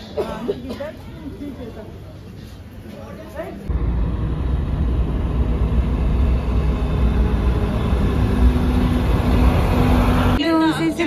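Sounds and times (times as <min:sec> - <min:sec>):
tyre and engine rumble: 0:03.7 - 0:10.4.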